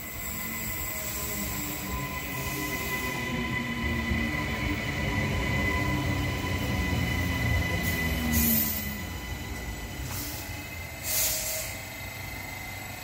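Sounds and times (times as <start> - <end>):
electric train rumble and whine: 0.0 - 13.0
air hiss: 10.0 - 11.9.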